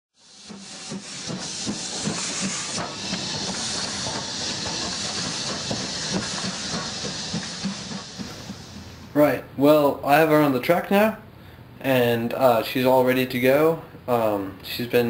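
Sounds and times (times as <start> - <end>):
steam locomotive hissing: 0.2 - 9.4.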